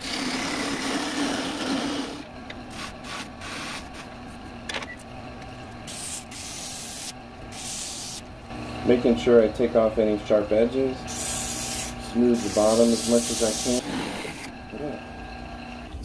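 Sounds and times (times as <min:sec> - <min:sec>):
lathe tool scraping wood: 0:00.0 - 0:04.4, 0:10.9 - 0:15.3
lathe motor hum: 0:00.0 - 0:07.6, 0:08.2 - 0:16.0.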